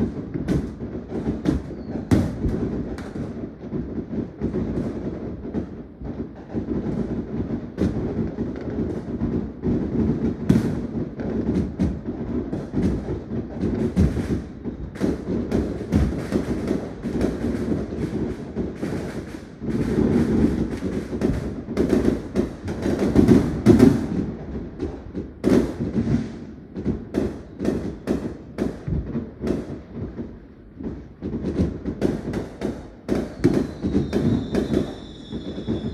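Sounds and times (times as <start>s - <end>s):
firecrackers banging and crackling: 0.0s - 35.9s
low rumble of fireworks booms: 0.0s - 35.9s.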